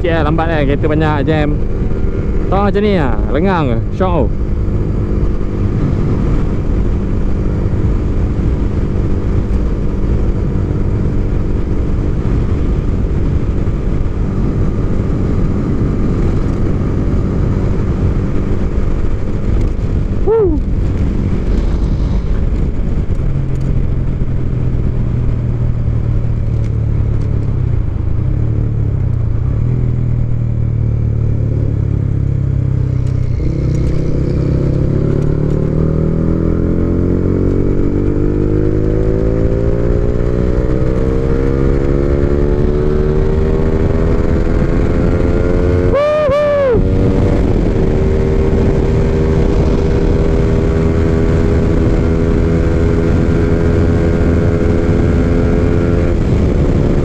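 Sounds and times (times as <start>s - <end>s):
motorcycle engine running: 0.0s - 57.0s
wind rushing over microphone: 0.0s - 57.0s.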